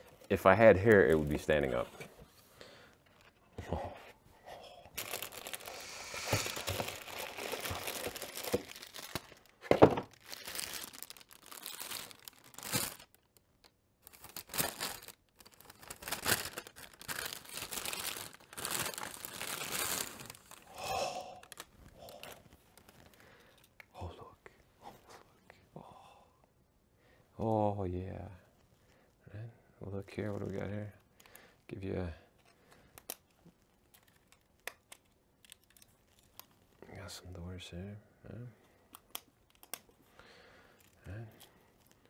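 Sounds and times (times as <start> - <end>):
plastic bag crinkling: 5.0 - 23.4.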